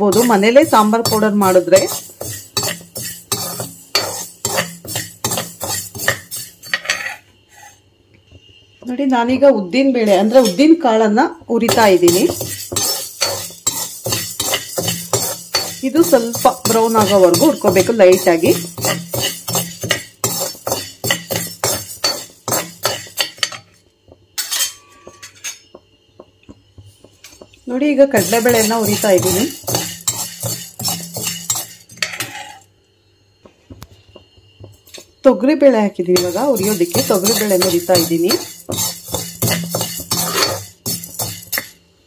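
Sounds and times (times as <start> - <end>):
spoon scraping seeds in a pan: 0.0 - 7.8, 9.8 - 10.9, 11.5 - 23.8, 26.7 - 32.7, 36.1 - 41.8.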